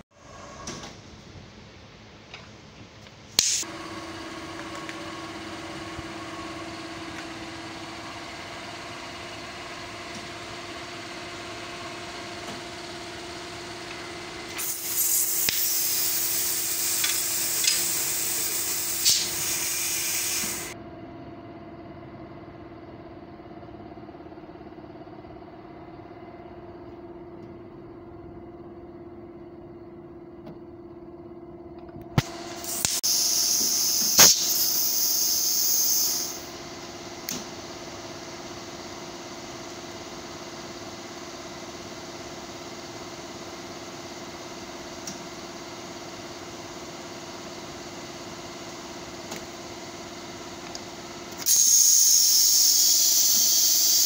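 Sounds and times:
loud hiss of air: 3.4 - 3.7, 14.6 - 20.8, 32.6 - 36.5, 51.4 - 54.0
electric motor humming: 13.8 - 20.8.

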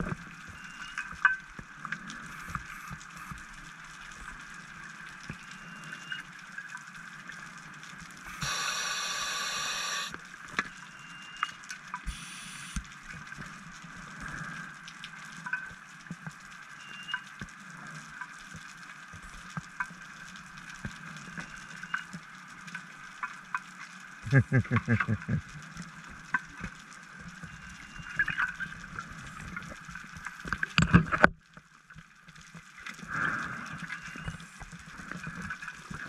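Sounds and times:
faint underwater crackle: 0.0 - 36.0
diver's exhaled bubbles: 24.3 - 25.5.

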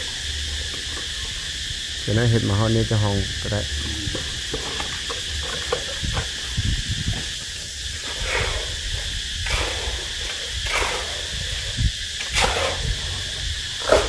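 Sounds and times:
insects droning: 0.0 - 14.0
wind on microphone: 3.2 - 14.0.

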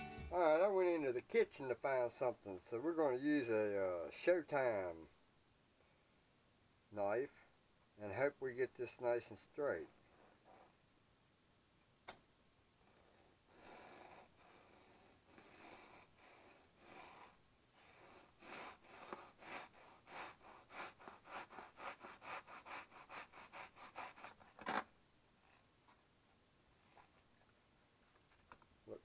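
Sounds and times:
knife sawing through foam: 12.9 - 24.5.

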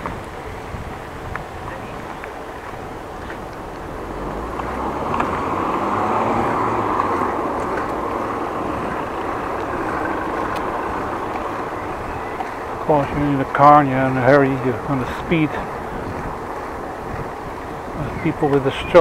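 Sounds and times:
car accelerating past: 3.6 - 18.6.

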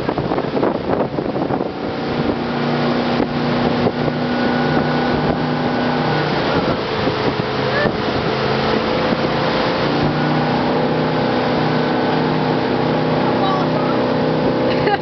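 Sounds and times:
motorboat engine humming: 0.0 - 15.0
water rushing: 0.0 - 15.0
wind buffeting microphone: 0.0 - 15.0.

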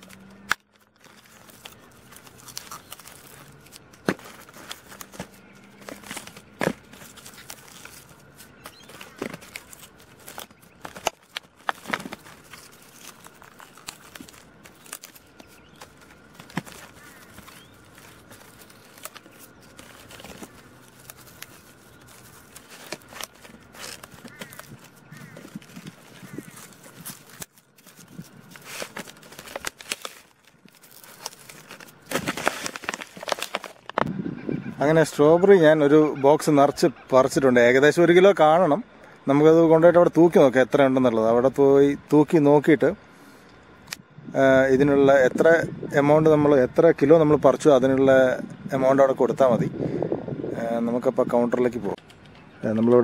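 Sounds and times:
plastic punnet crinkling: 0.0 - 34.1.

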